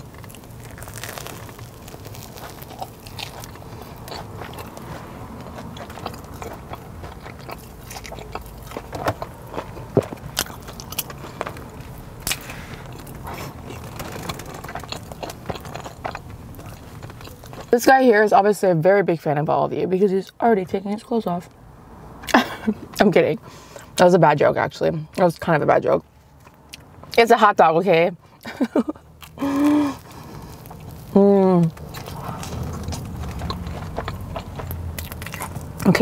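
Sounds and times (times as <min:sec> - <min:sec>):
crunching crispy batter: 0:00.0 - 0:18.0, 0:28.7 - 0:36.0.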